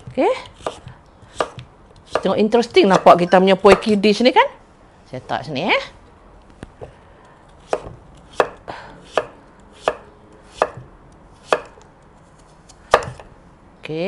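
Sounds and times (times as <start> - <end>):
knife slicing pumpkin: 0.0 - 4.0, 7.6 - 11.8.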